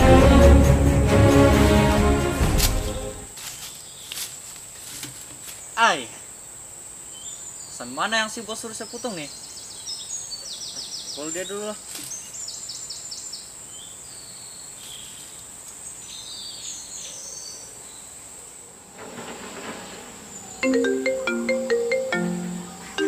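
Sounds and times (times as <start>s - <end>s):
insect whine: 17.8s - 23.0s
mobile phone ringtone: 20.6s - 23.0s.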